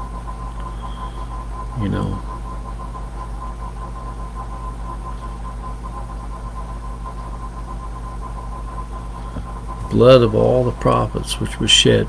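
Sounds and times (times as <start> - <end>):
background hum and hiss: 0.0 - 12.0
thin steady whine: 0.0 - 12.0.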